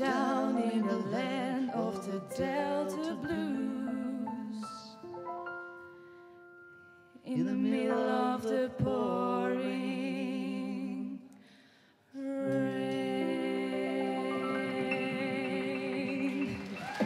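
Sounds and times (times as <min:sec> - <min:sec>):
wordless vocal harmonies: 0:00.0 - 0:17.0.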